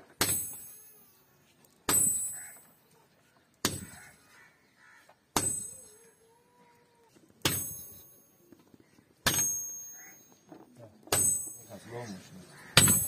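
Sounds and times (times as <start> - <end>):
hammer striking hot iron on anvil: 1.9 - 2.4, 5.4 - 5.9, 7.4 - 8.2, 9.2 - 10.3, 11.1 - 11.7, 12.8 - 13.0.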